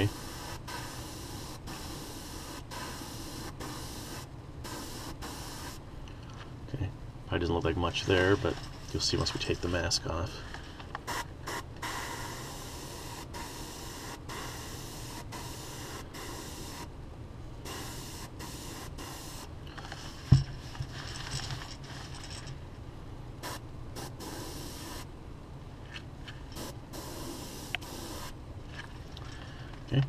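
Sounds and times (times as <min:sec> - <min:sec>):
airbrush spraying hiss: 0:00.0 - 0:05.8, 0:11.0 - 0:16.9, 0:17.6 - 0:20.3, 0:23.4 - 0:25.1, 0:26.6 - 0:28.4.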